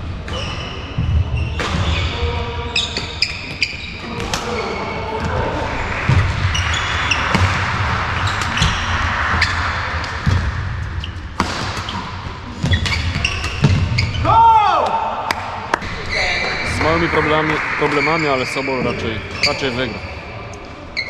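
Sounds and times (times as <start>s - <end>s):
shoes squeaking on court: 0.3s - 5.5s, 11.8s - 14.3s, 18.8s - 21.0s.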